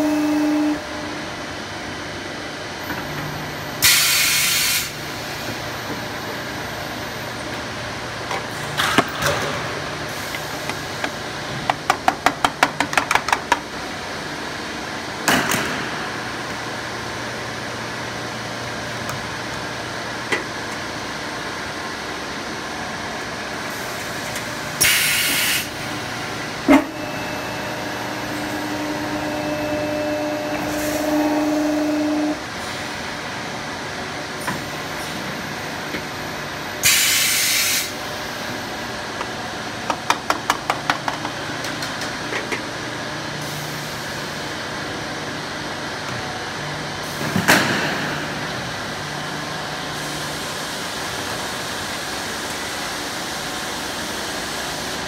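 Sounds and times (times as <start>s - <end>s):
workshop drone: 0.0s - 55.0s
sharp air hisses: 3.8s - 5.0s
steady hum: 13.9s - 36.9s.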